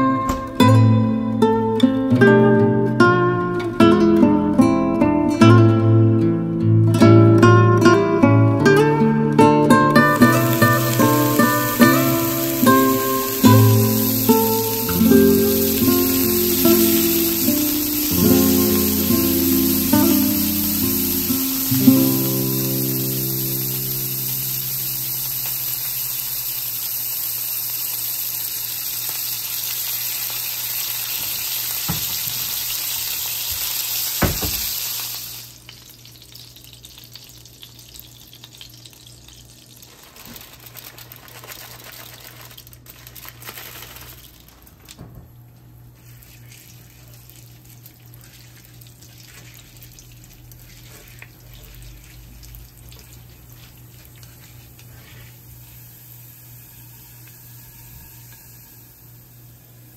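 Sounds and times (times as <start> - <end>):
chicken sizzling: 8.6 - 44.9, 45.7 - 59.9
sharp knock: 34.2 - 34.7.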